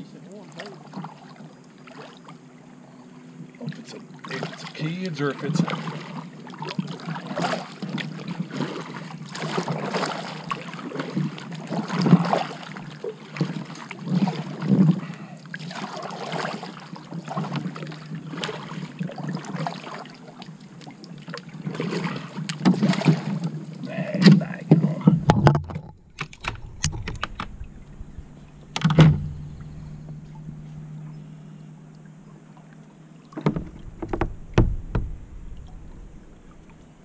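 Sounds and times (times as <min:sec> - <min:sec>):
paddle splashing in water: 0:00.2 - 0:02.4, 0:03.6 - 0:37.0
small knocks: 0:25.0 - 0:31.1, 0:33.3 - 0:36.9.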